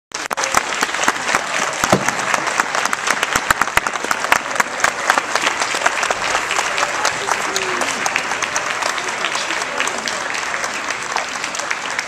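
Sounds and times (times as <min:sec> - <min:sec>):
crowd applauding: 0:00.1 - 0:12.0.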